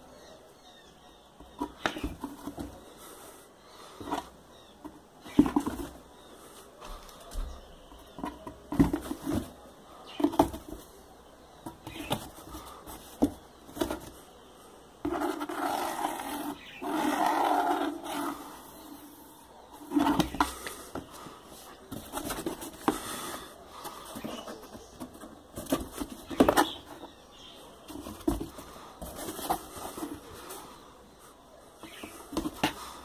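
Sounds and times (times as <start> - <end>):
cat bumping cardboard box: 8.2 - 9.6, 19.8 - 21.1, 24.1 - 27.0.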